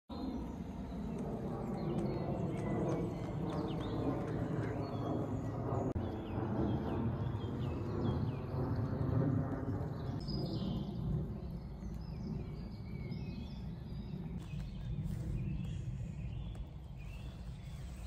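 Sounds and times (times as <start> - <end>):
steady low rumble: 0.1 - 18.0
songbirds chirping: 0.2 - 18.0.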